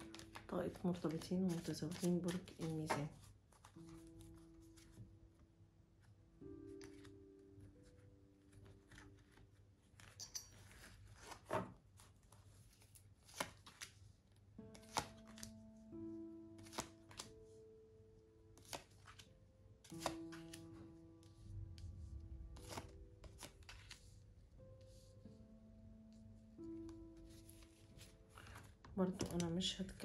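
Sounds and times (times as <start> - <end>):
cards shuffling rustle: 0.0 - 5.0, 6.6 - 7.2, 7.8 - 14.0, 14.7 - 15.6, 16.6 - 17.3, 18.6 - 20.7, 22.6 - 24.2
soft background music: 0.0 - 30.0.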